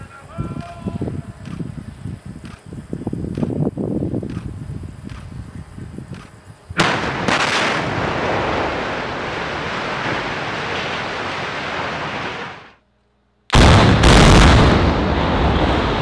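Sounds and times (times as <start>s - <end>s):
demolition explosion blast: 6.8s - 12.8s, 13.5s - 16.0s
structure collapsing rushing noise: 6.8s - 12.8s.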